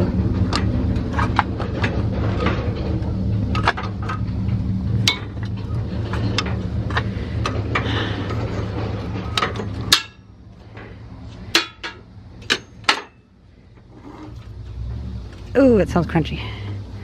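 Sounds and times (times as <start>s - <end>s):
low steady hum: 0.0s - 17.0s
scrap metal clanking: 0.3s - 14.6s.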